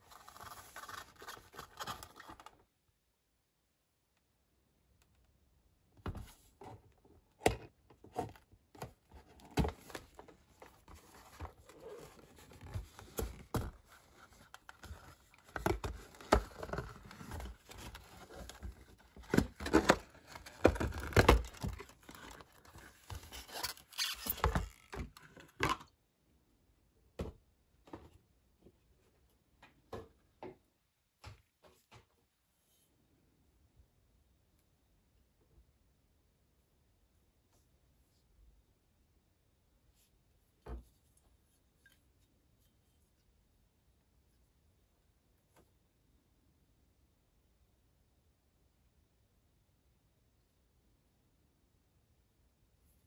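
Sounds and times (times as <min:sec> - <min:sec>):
cardboard scraping and tearing: 0:09.4 - 0:25.0.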